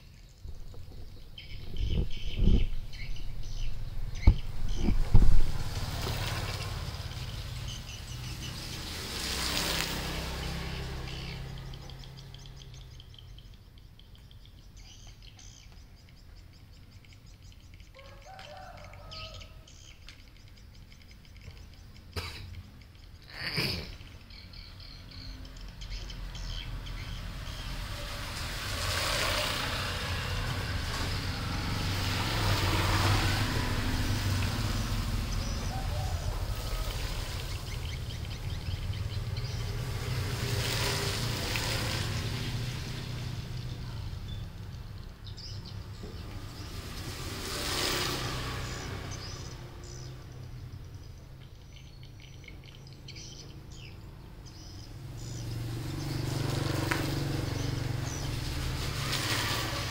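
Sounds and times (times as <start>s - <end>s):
rushing noise with low rumble: 0.4s - 12.0s.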